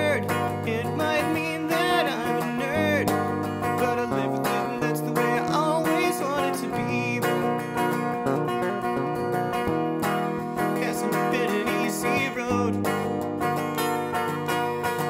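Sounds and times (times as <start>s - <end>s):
man singing: 0.0s - 9.4s, 10.4s - 13.2s
strummed electric guitar chords: 0.0s - 15.0s.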